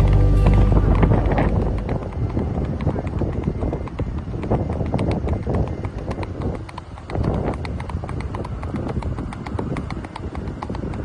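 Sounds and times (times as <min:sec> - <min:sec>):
low rumble: 0:00.0 - 0:04.3
horse hooves on asphalt: 0:00.0 - 0:11.0.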